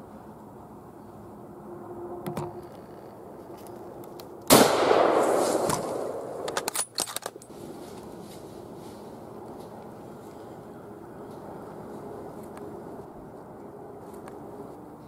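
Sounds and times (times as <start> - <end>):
rifle shot echoing: 4.5 - 6.7
sharp clicks and rustles: 5.6 - 8.1.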